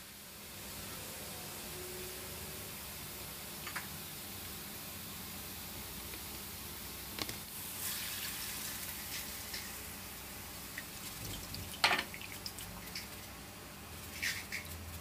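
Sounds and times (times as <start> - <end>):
hot oil splashing into sieve: 7.2 - 15.0.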